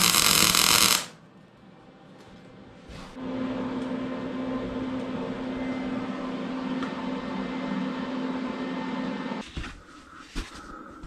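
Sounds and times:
noisy hiss: 0:00.0 - 0:01.2
mechanical hum with low drone: 0:00.0 - 0:11.0.

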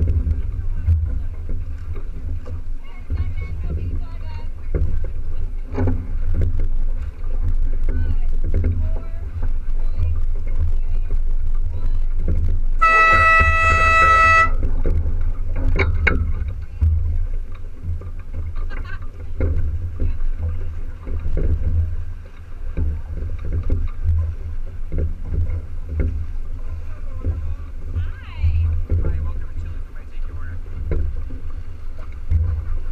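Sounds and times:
wind rumble on microphone: 0:00.0 - 0:32.9
air horn blast: 0:12.8 - 0:14.6.

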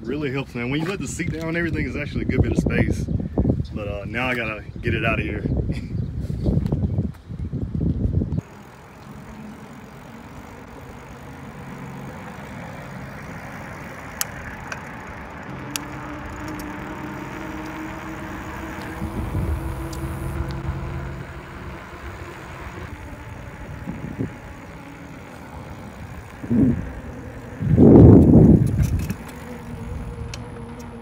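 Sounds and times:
wind noise on microphone: 0:00.7 - 0:08.5, 0:15.6 - 0:31.0
bike tyres on asphalt: 0:06.2 - 0:31.0
low hum: 0:08.2 - 0:31.0
sharp clicks: 0:13.2 - 0:22.9, 0:23.8 - 0:31.0.

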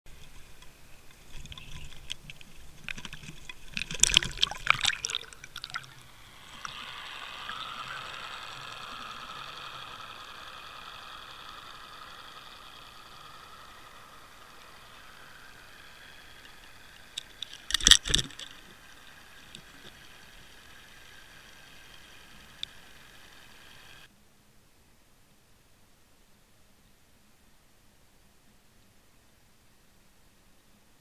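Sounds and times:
muffled underwater rush: 0:01.2 - 0:09.4.

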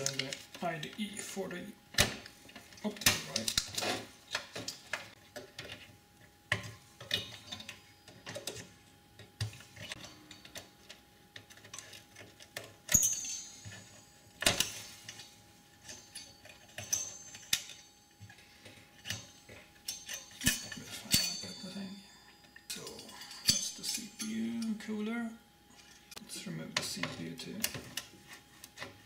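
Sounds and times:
metallic clicks and clinks of hands: 0:09.8 - 0:24.7.

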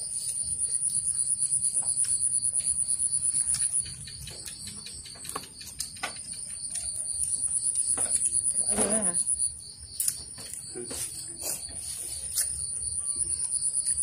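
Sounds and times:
insect trilling: 0:00.0 - 0:14.0
chopsticks clicking on bowls: 0:03.4 - 0:07.0.

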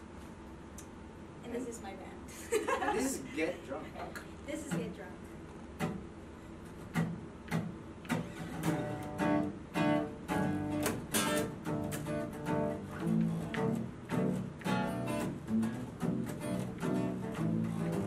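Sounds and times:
acoustic guitars strumming: 0:04.5 - 0:18.0.

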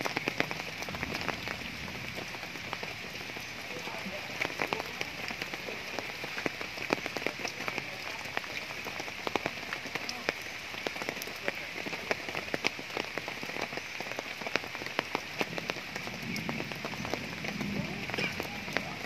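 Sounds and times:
raindrops ticking close by: 0:00.0 - 0:19.0
steady rain hiss: 0:00.0 - 0:19.0.

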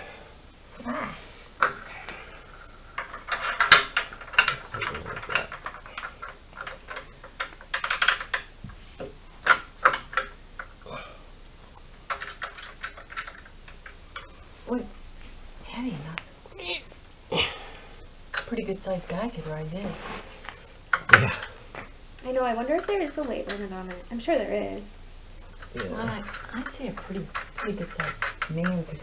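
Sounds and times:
metal hardware clattering: 0:02.9 - 0:08.5.

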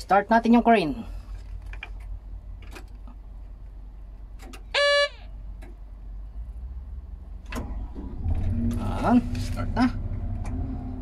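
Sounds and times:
steady low rumble: 0:00.0 - 0:04.4, 0:05.3 - 0:11.0
loud beep: 0:04.8 - 0:05.2.

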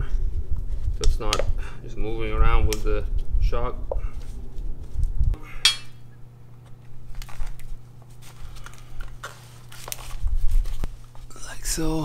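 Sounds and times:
bright ringing clink: 0:05.6 - 0:06.0.

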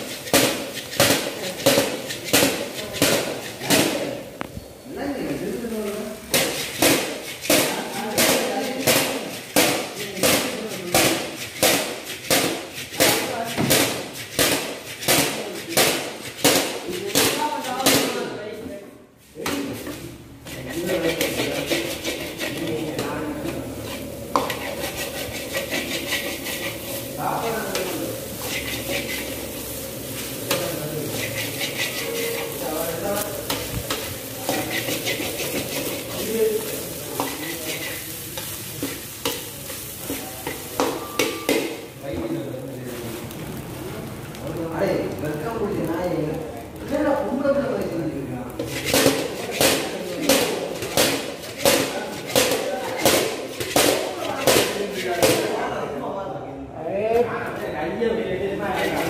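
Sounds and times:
wok sizzle and scrape: 0:00.0 - 0:18.6, 0:19.2 - 0:55.8, 0:58.5 - 0:59.0.

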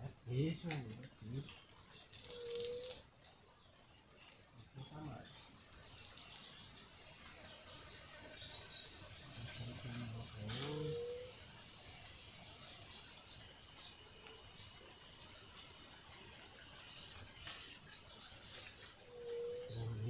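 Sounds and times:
insects chirring: 0:00.0 - 0:20.0
faint bird chirps: 0:00.2 - 0:11.4.

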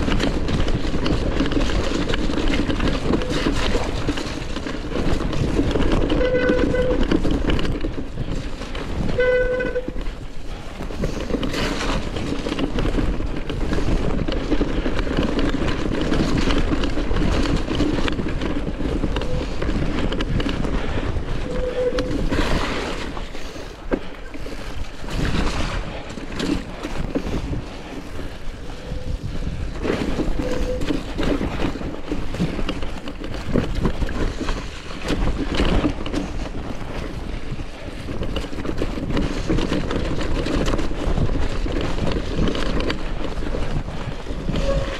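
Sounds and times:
bike rattling over bumps: 0:00.0 - 0:44.9
tyres rolling through mud: 0:00.0 - 0:44.9
wind buffeting microphone: 0:00.0 - 0:44.9
short squeals: 0:30.4 - 0:31.0.

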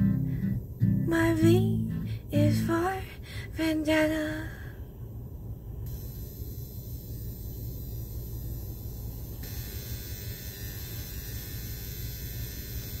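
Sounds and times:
car cabin low rumble: 0:00.0 - 0:04.6.

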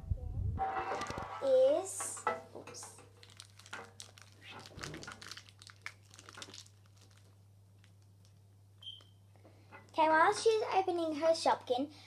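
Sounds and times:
plastic wrapper crinkling: 0:02.9 - 0:08.5.

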